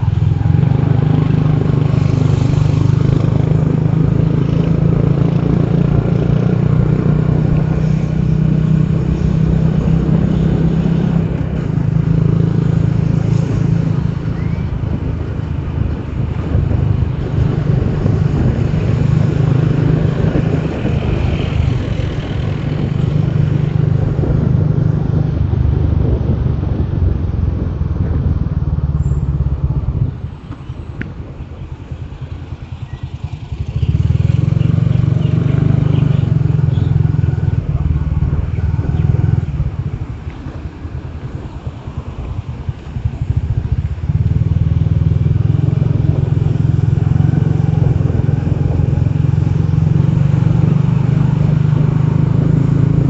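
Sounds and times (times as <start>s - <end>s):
wind and road noise: 0.0s - 53.0s
motorbike engine running: 31.8s - 53.0s.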